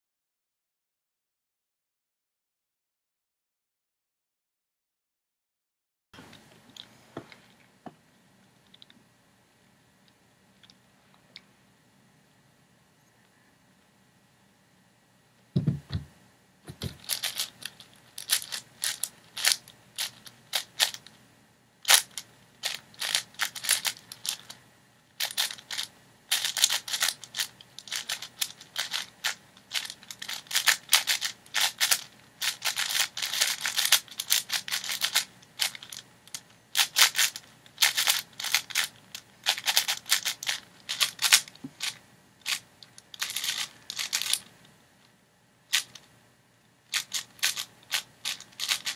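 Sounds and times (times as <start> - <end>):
speed cube clicking: 16.8 - 21.1, 21.9 - 24.6, 25.2 - 36.0, 36.8 - 44.5, 46.9 - 48.9.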